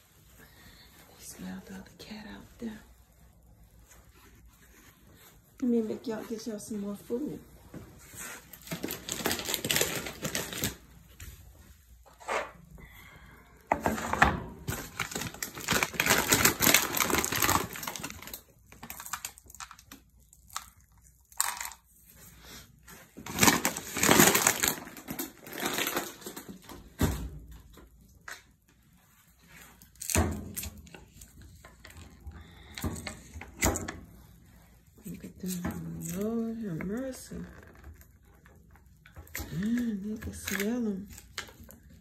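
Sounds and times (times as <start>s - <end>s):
food bag rustling and crinkling: 0.6s - 11.8s, 14.0s - 27.0s.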